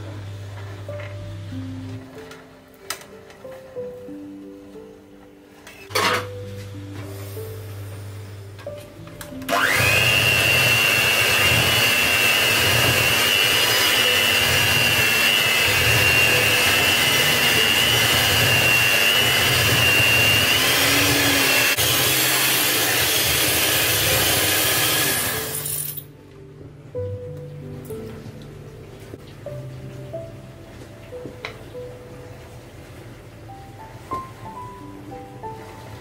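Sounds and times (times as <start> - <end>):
electric hand mixer whining: 9.5 - 25.9.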